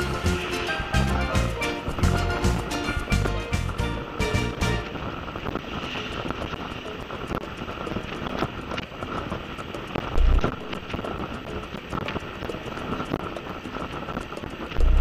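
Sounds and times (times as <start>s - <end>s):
background music: 0.0s - 5.1s
wind on microphone: 0.0s - 15.0s.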